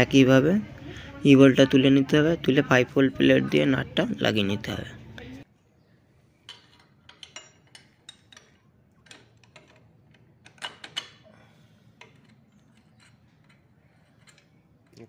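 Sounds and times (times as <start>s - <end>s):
metal clicks and clinks of tools: 6.5s - 11.2s, 12.0s - 15.0s.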